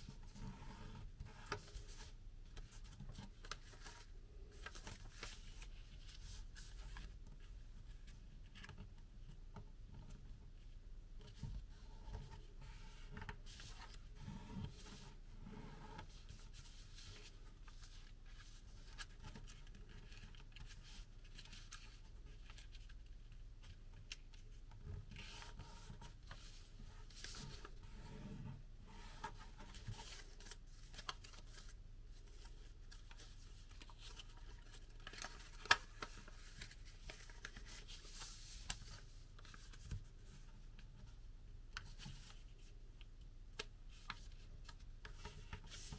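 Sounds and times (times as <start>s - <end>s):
paper rustling and crackling: 28.9s - 40.4s
paper fold clicks: 33.1s - 39.9s.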